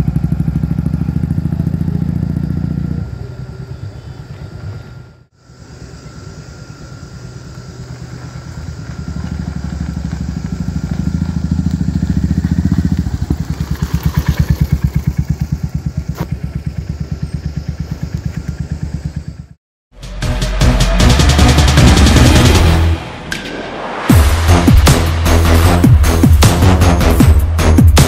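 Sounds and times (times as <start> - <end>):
motorcycle engine running: 0.0 - 19.6.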